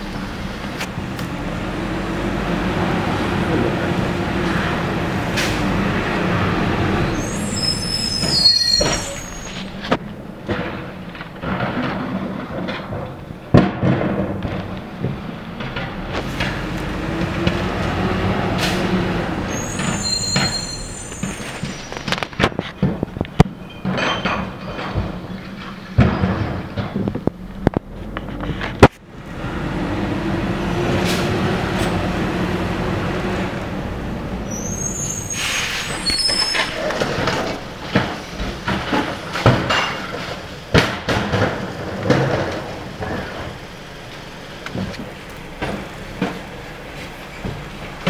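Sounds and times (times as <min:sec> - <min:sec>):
high metal squeals: 0:07.0 - 0:09.8, 0:19.5 - 0:22.0, 0:34.5 - 0:36.9
carts banging against hopper: 0:08.0 - 0:29.0, 0:34.8 - 0:48.0
clattering knocks of recyclables: 0:08.2 - 0:18.9, 0:19.6 - 0:29.0, 0:35.8 - 0:48.0.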